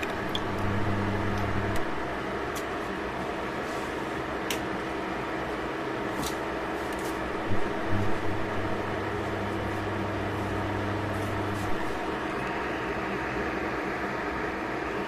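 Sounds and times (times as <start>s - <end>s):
deeper hum: 0.0s - 2.4s, 7.3s - 13.7s.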